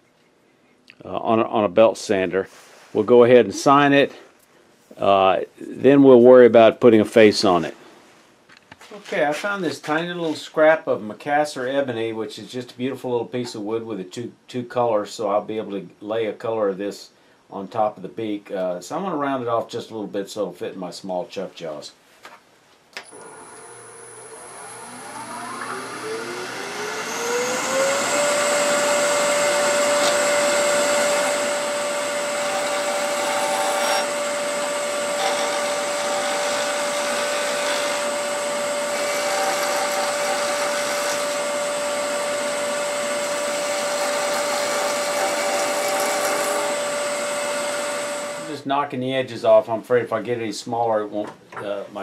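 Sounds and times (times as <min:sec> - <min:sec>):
wood lathe motor whine: 0:23.0 - 0:48.5
turning tool cutting wood: 0:23.0 - 0:48.6.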